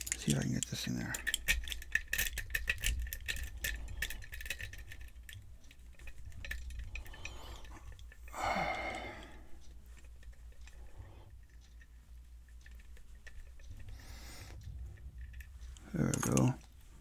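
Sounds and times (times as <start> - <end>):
lock pick clicking and scraping: 0.0 - 8.3, 12.6 - 16.8.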